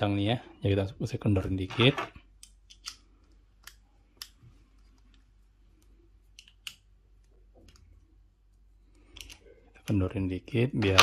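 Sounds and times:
small clicks of plastic parts: 2.4s - 5.2s, 5.8s - 7.9s, 9.0s - 9.4s.

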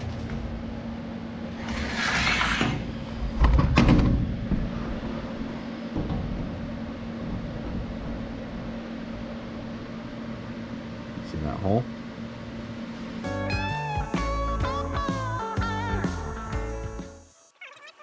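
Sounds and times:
welder cooling fan hum: 0.0s - 17.6s
metal toolbox sliding scrape: 1.6s - 3.0s
heavy metal clunks: 5.9s - 8.4s.

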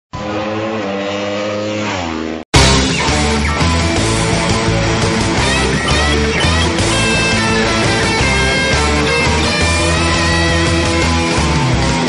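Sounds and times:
heavy rock music: 2.6s - 12.0s.

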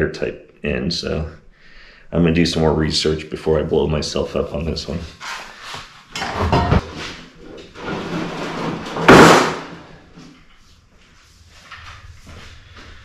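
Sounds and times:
things knocking and clattering: 6.2s - 9.8s
loud bang: 9.0s - 9.9s.

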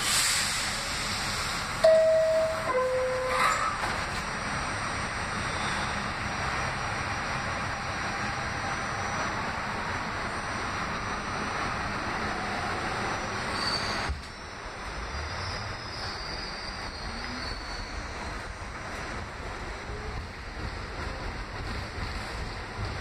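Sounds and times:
subway wheels rumbling and rattling: 0.0s - 23.0s
thin wheel squeal: 13.5s - 14.1s.

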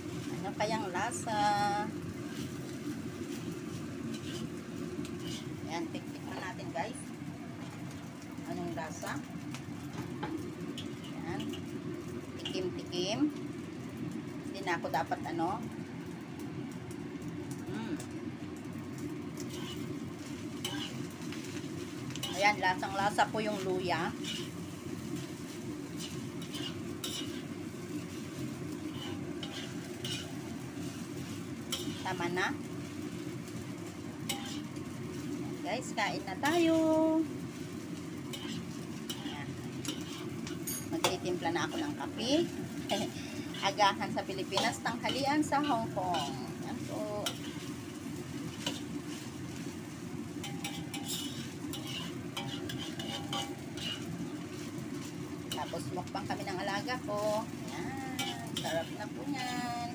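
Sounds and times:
light sizzling: 0.0s - 59.9s
metal spatula scraping a wok: 2.2s - 6.5s, 10.7s - 11.8s, 19.4s - 33.6s, 34.2s - 36.8s, 37.4s - 59.2s
metal ladle scraping and clinking: 24.2s - 24.6s, 28.9s - 30.4s, 34.3s - 34.7s, 38.3s - 41.1s, 50.4s - 54.1s.

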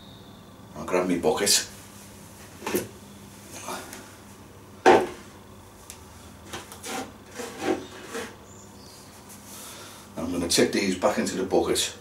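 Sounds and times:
bucket rubbing on worktop: 6.7s - 8.4s.

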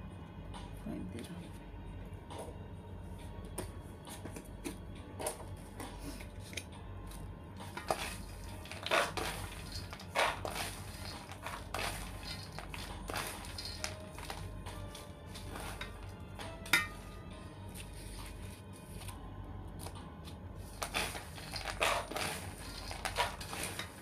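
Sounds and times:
peanuts rattling: 7.7s - 16.6s, 20.7s - 24.0s.

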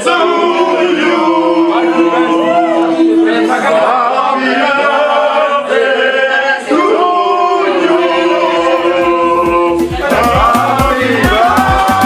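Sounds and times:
group singing without instruments: 0.0s - 12.0s.

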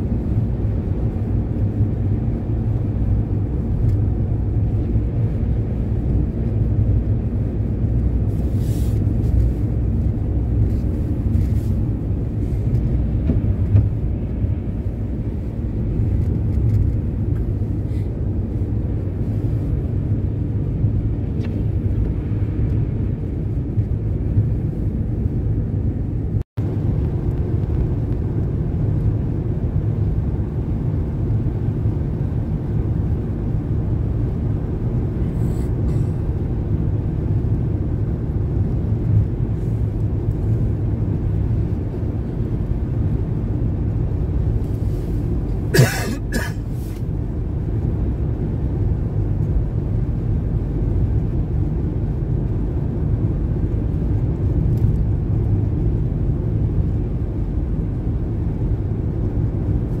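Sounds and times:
car road and engine rumble: 0.0s - 60.0s
person coughing: 45.7s - 46.7s.

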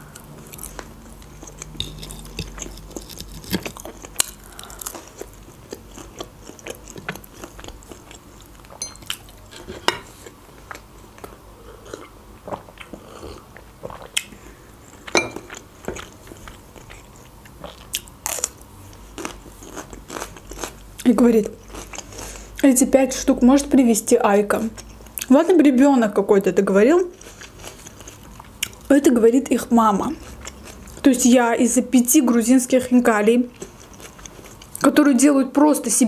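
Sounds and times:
person chewing food: 0.0s - 22.6s, 27.2s - 28.9s, 30.2s - 31.1s, 33.6s - 34.8s.

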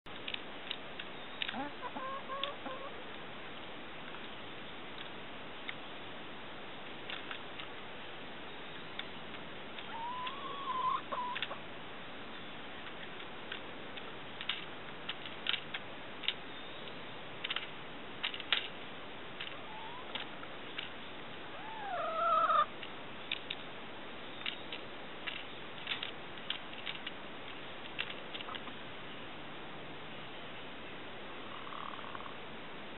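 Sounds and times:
hens pecking metal nipples: 0.7s - 3.0s, 9.8s - 11.6s
hen calling: 1.4s - 3.0s, 9.8s - 11.6s, 19.5s - 20.2s, 21.4s - 22.7s.

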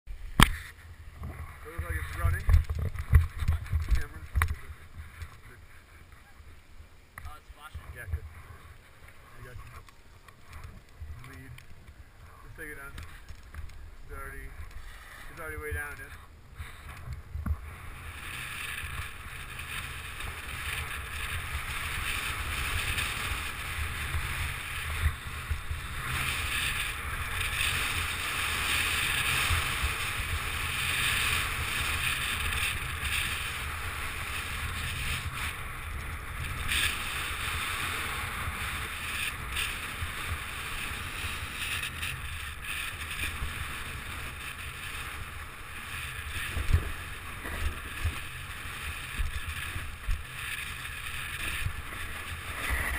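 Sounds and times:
wind rushing over microphone: 0.1s - 5.8s
skis scraping on packed snow: 0.4s - 6.6s, 7.3s - 52.9s.

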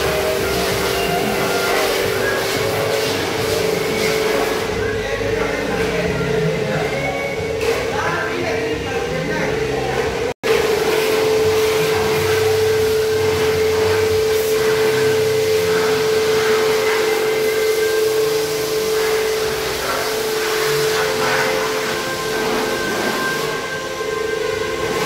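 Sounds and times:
water spraying on car: 0.0s - 4.8s, 10.4s - 25.0s
pressure washer humming: 0.0s - 25.0s.

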